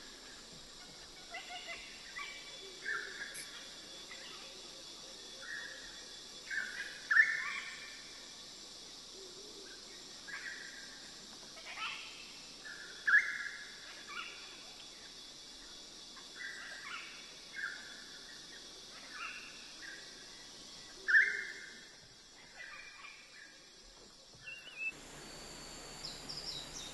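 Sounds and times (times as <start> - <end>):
steady high hiss: 0.0 - 26.9.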